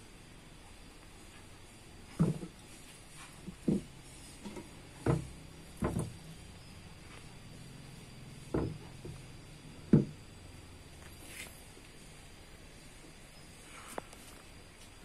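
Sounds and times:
metal exhaust knocking on wood: 8.5 - 9.2, 9.9 - 10.2.

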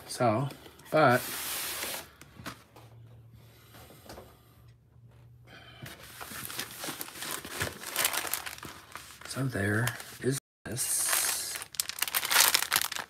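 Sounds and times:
paper rustling: 6.0 - 10.3, 11.1 - 13.0.

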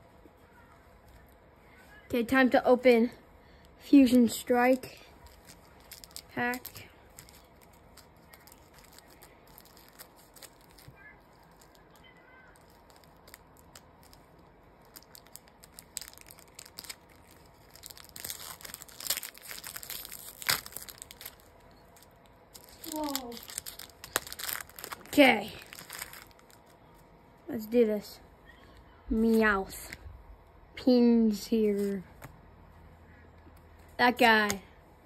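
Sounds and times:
foil wrapper crinkling and ripping: 4.6 - 26.8.

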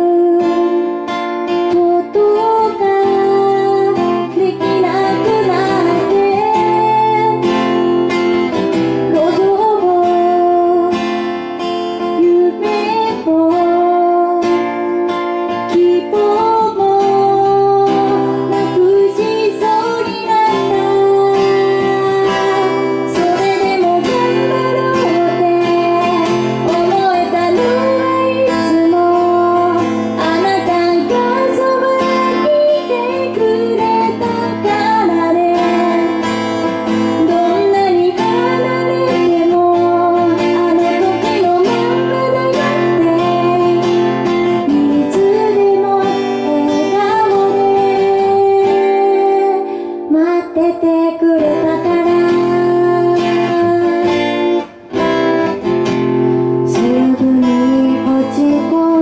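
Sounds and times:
acoustic guitar strumming: 0.0 - 59.0
woman singing: 0.0 - 59.0.

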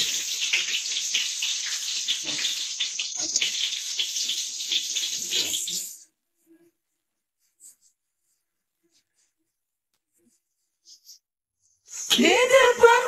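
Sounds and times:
garlic sizzling in hot oil: 0.0 - 6.0.

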